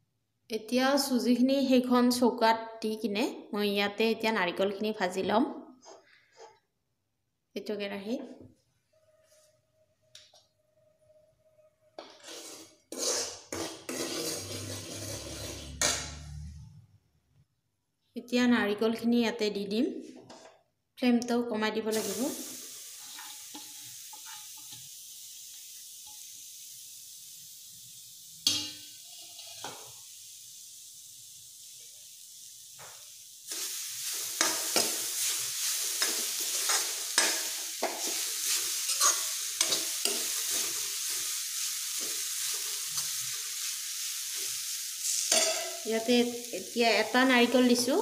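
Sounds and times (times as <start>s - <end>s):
light sizzle: 9.1s - 16.7s, 21.8s - 48.0s
spoon scraping a pan: 12.0s - 16.4s, 22.9s - 24.8s, 28.4s - 30.0s, 33.5s - 43.4s, 44.3s - 46.1s
coconut roasting hiss: 22.0s - 48.0s.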